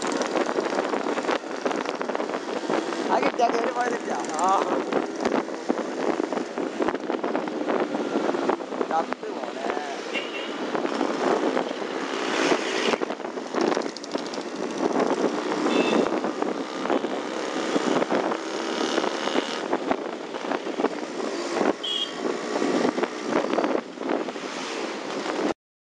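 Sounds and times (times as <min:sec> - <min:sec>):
wind and road noise: 0:00.0 - 0:25.6
high horn toots: 0:15.7 - 0:16.2, 0:21.8 - 0:22.2.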